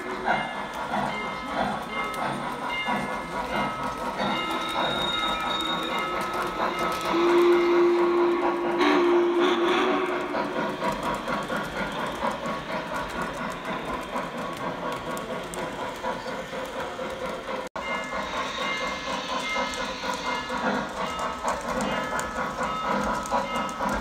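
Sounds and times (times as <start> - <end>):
model trains rumbling and clattering: 0.0 - 24.0
model train whistle: 7.1 - 10.4.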